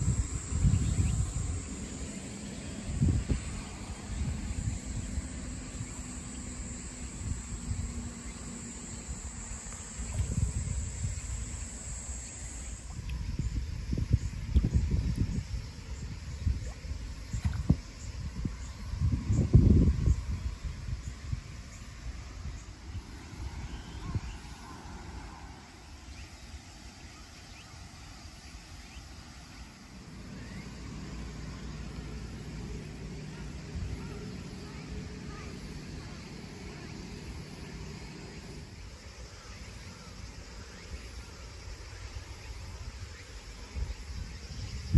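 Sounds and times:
wind rumble on microphone: 0.0s - 26.2s, 40.2s - 44.9s
faint high chirps: 0.0s - 44.9s
insects calling: 0.0s - 44.9s.

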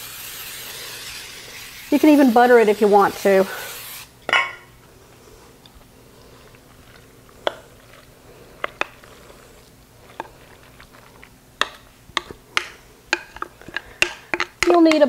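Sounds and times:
wet squelching of scraped mixture: 5.1s - 15.0s.

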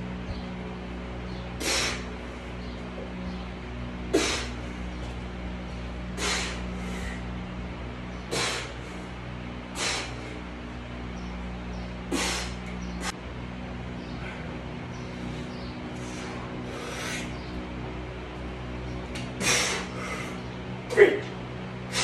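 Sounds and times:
steady low hum: 0.0s - 22.0s
man's forceful hissing exhales: 1.6s - 2.2s, 4.1s - 4.7s, 6.2s - 7.2s, 8.3s - 9.0s, 9.7s - 10.4s, 12.1s - 13.2s, 19.4s - 20.4s.

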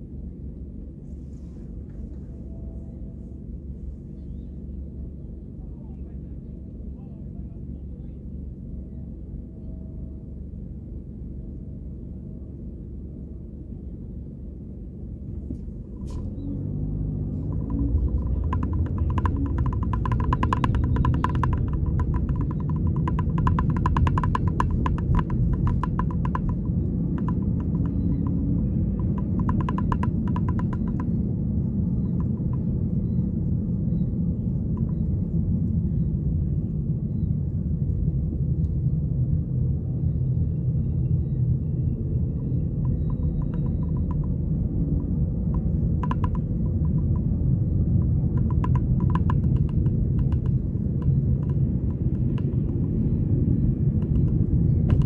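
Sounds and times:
car road and engine rumble: 0.0s - 55.0s
rapid ticking: 17.0s - 36.1s, 42.0s - 55.0s.

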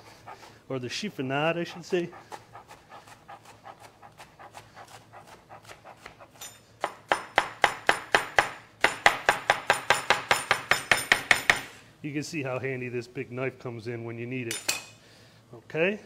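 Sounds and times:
knife chopping on plastic board: 2.2s - 11.7s.

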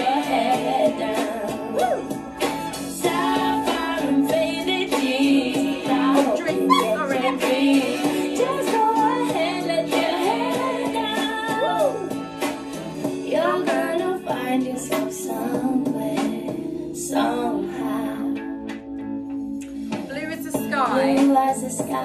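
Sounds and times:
instrumental backing: 0.0s - 22.0s
woman singing a melody: 3.0s - 12.1s, 13.2s - 18.4s, 20.1s - 22.0s.

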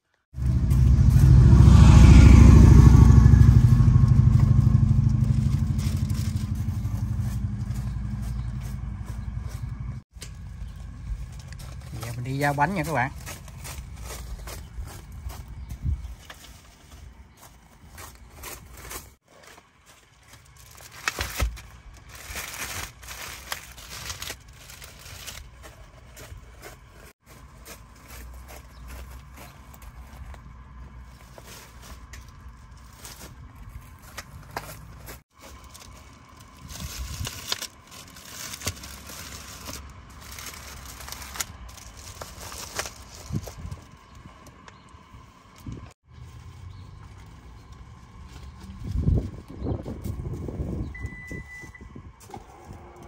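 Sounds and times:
plastic bags crinkling: 18.6s - 29.4s, 31.0s - 44.4s.

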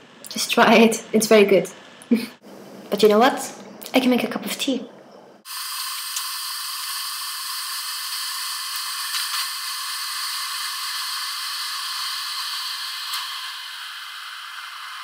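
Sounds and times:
electric kettle heating water: 5.4s - 15.0s.

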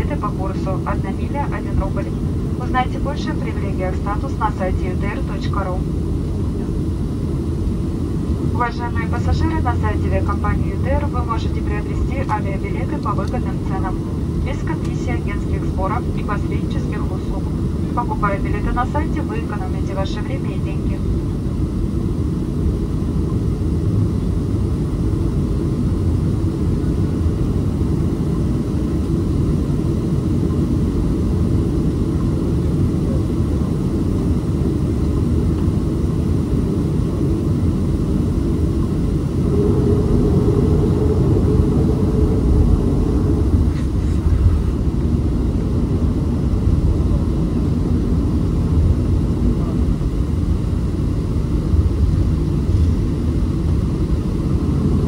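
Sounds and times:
jet engines rumbling: 0.0s - 55.0s
humming tone: 34.2s - 55.0s.

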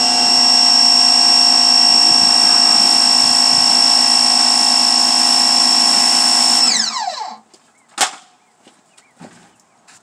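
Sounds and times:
pressure washer whine: 0.0s - 7.4s.

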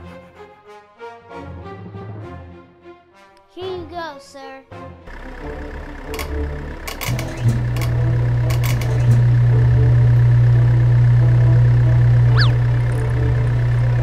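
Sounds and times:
low engine drone: 5.1s - 14.0s.

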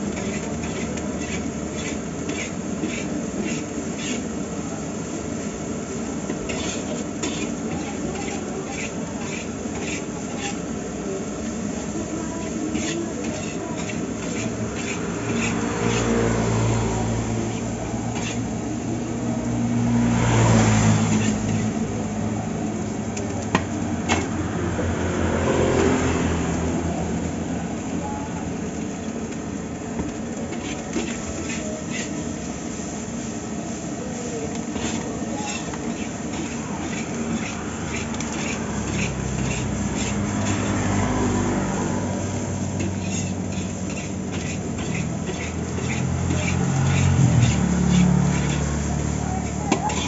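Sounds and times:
metal spatula scraping a wok: 0.0s - 4.6s, 6.1s - 18.9s, 20.1s - 22.0s, 30.0s - 50.0s
heavy road traffic drone: 0.0s - 50.0s.

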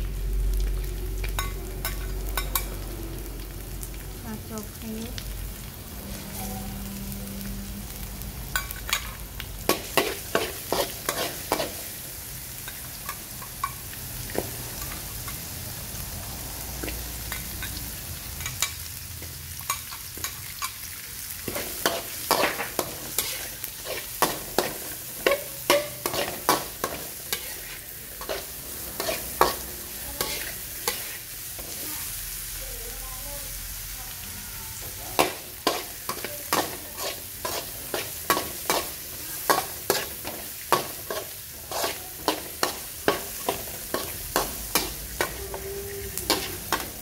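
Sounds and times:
hot oil sizzling: 0.0s - 47.0s
metal spatula scraping wok: 8.5s - 12.0s, 21.4s - 32.0s, 34.8s - 47.0s.

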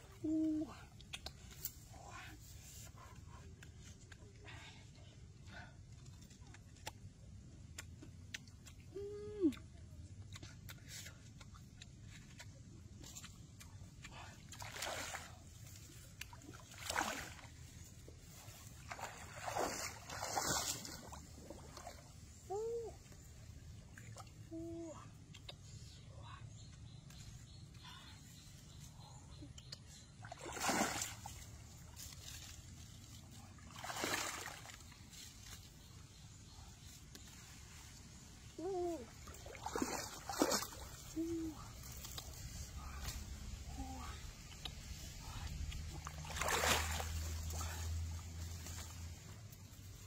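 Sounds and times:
footsteps splashing in muddy water: 14.5s - 22.1s, 30.2s - 35.4s, 39.2s - 41.2s, 45.6s - 49.3s
water splash: 30.3s - 31.4s, 46.0s - 47.6s.

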